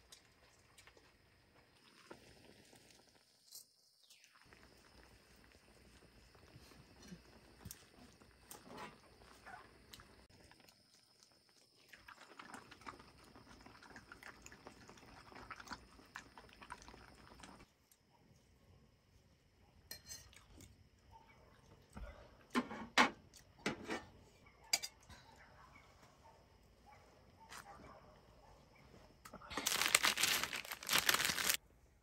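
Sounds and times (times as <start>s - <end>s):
metal bowls and utensils clinking: 19.9s - 20.4s, 24.7s - 25.1s.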